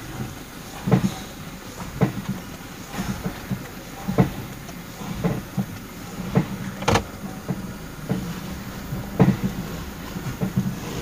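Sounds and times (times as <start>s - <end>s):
car engine idling: 0.0s - 11.0s
sharp clacking knocks under car: 1.8s - 8.3s.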